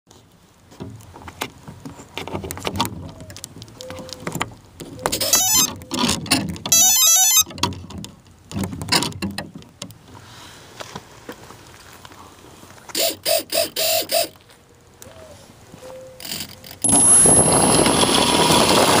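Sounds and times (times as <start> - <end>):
handling clicks and knocks: 0.6 - 6.8, 7.4 - 10.2.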